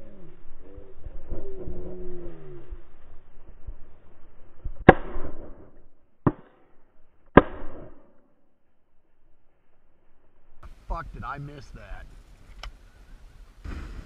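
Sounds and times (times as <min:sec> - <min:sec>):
shotgun shots: 0:04.8 - 0:06.6, 0:07.3 - 0:08.1.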